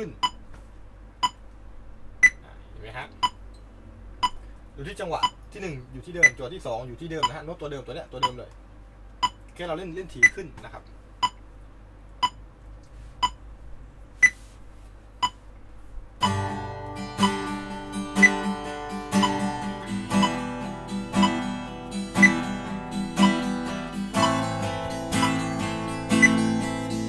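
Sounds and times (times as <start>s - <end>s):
metronome clicking: 16.2s - 16.5s, 19.2s - 19.6s, 20.2s - 20.4s, 21.2s - 21.4s, 24.2s - 24.6s, 25.2s - 25.5s
acoustic guitar strumming: 16.2s - 27.0s.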